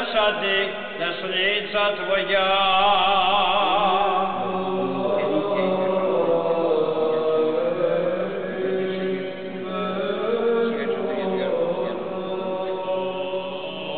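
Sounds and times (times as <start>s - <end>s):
voices chanting: 3.5s - 13.9s.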